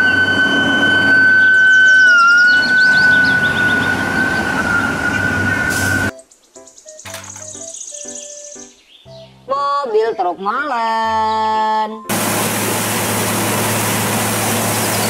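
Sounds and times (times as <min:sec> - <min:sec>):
siren falling chirps: 0:00.0 - 0:06.1
siren steady high wail: 0:00.0 - 0:06.1.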